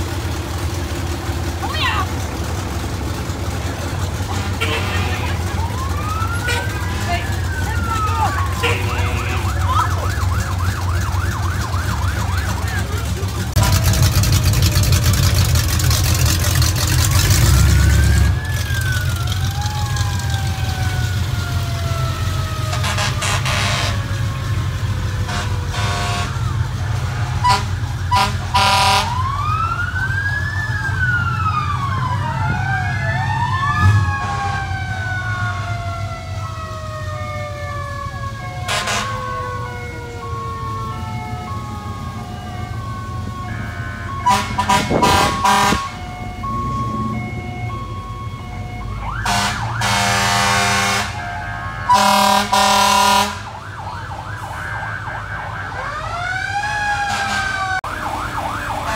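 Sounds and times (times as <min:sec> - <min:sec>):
emergency sirens wailing: 0:00.0 - 0:58.9
low engine rumble: 0:00.0 - 0:58.9
horn blasts: 0:04.2 - 0:05.5, 0:08.6 - 0:09.6, 0:22.7 - 0:24.1, 0:25.2 - 0:29.2, 0:38.7 - 0:39.2, 0:43.4 - 0:46.1, 0:49.2 - 0:53.5, 0:57.1 - 0:57.8.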